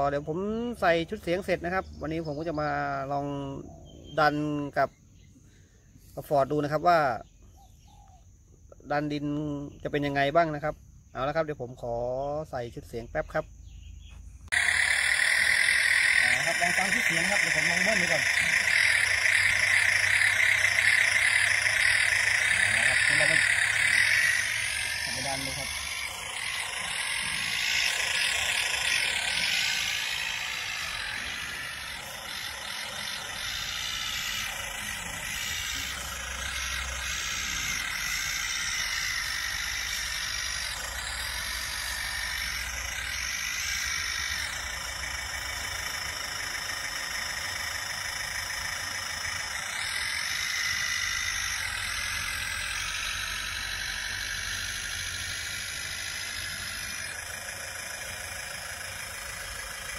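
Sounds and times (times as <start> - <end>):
simulated diesel tractor engine: 14.4 - 59.9.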